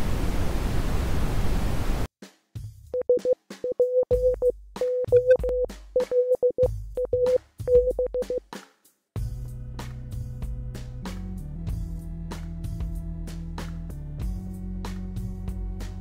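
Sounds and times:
deep bass notes: 0:09.2 - 0:16.0.

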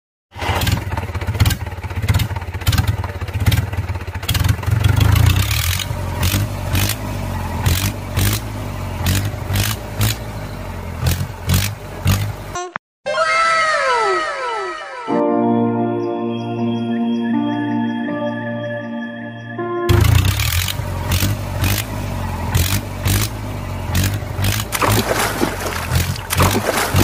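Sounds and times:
tractor engine rumbling: 0:00.4 - 0:12.6, 0:19.9 - 0:27.0.

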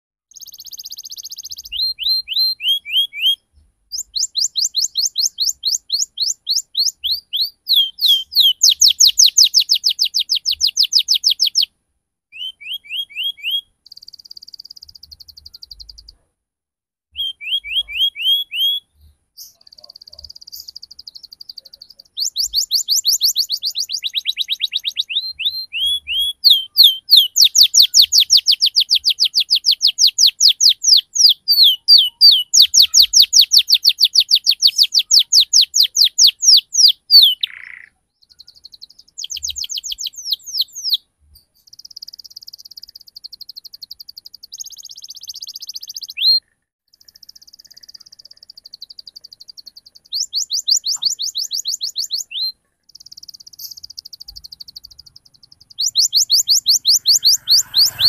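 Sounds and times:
canary singing trills: 0:00.3 - 0:11.7, 0:12.3 - 0:16.2, 0:17.1 - 0:58.0.

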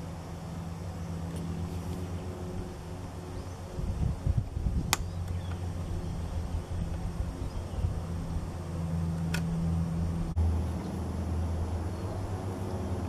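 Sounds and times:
low motor hum: 0:00.0 - 0:13.0
microphone rumbling: 0:01.4 - 0:08.6.

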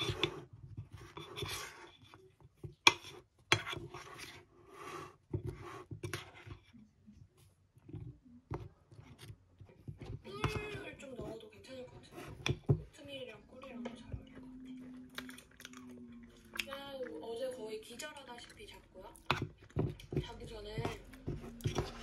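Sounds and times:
spoon squelching in creamy mixture: 0:00.0 - 0:22.0.

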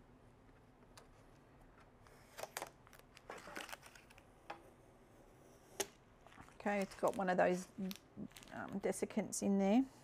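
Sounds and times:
plastic tape crinkling: 0:02.4 - 0:04.3, 0:06.6 - 0:09.0.

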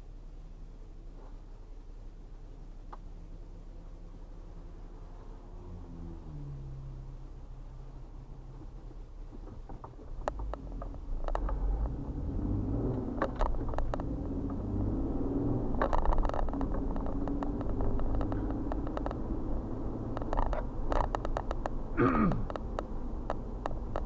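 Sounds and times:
car engine and road rumble: 0:00.0 - 0:24.0
clicks and rattles: 0:09.4 - 0:12.0, 0:12.9 - 0:14.7, 0:15.6 - 0:24.0.

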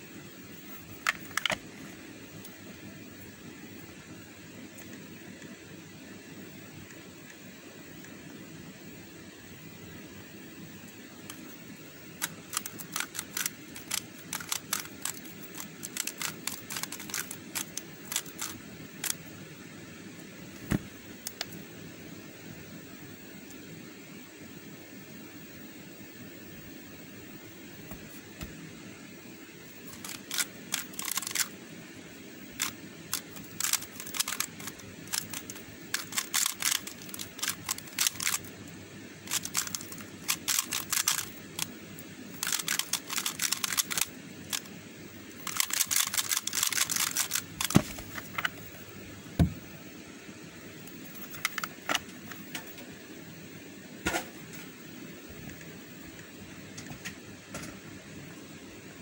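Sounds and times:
plastic puzzle cube clicking: 0:12.2 - 0:19.2, 0:29.9 - 0:31.5, 0:32.6 - 0:38.5, 0:39.3 - 0:41.7, 0:42.4 - 0:44.7, 0:45.4 - 0:48.5.

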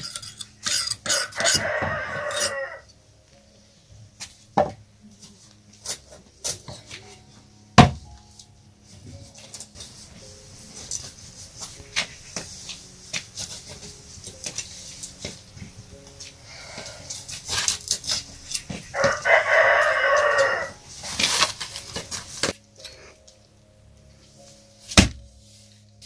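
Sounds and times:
rooster crowing: 0:01.1 - 0:02.9, 0:18.9 - 0:20.8.

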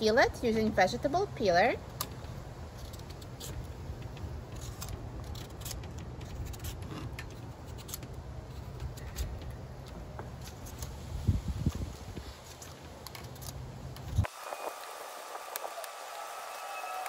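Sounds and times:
peeler scraping squash skin: 0:04.5 - 0:09.4.

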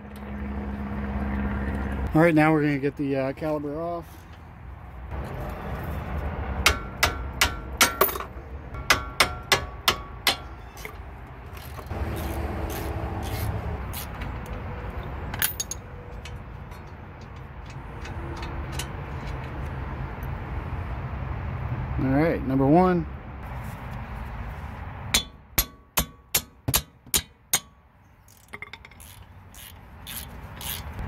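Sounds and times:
ratchet clacking: 0:28.3 - 0:31.0.

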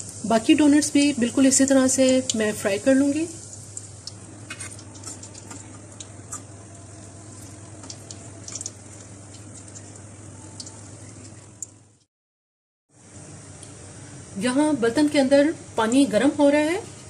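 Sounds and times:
donuts sizzling in oil: 0:00.0 - 0:12.1.

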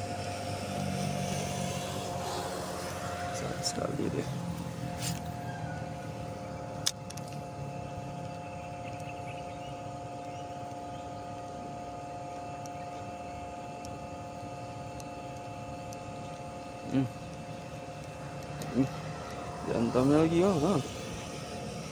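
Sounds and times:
machine hum: 0:00.0 - 0:21.9.

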